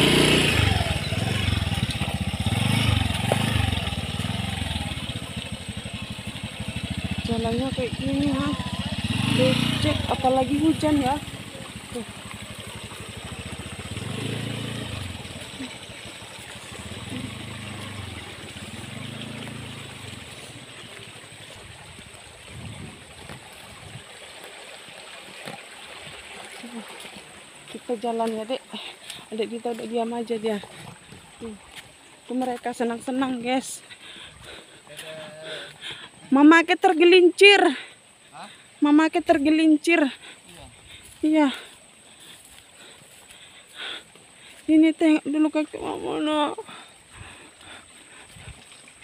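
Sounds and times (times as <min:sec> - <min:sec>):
small motorbike engine revving: 0:00.0 - 0:20.8.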